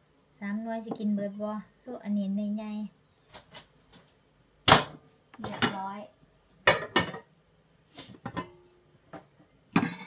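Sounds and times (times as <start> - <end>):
metal pots and pans clanking: 4.7 - 5.8, 6.7 - 7.3, 8.2 - 8.6, 9.8 - 10.0.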